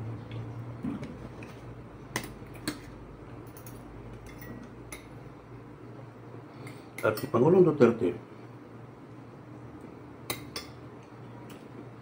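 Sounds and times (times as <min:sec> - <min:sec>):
low steady hum: 0:00.0 - 0:12.0
sharp cutlery clinks: 0:03.4 - 0:05.1.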